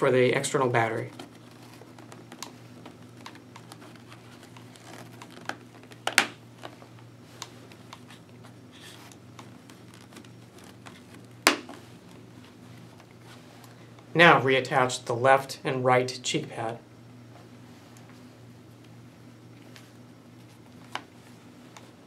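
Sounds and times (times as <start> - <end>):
fabric rustling: 1.0 - 5.9.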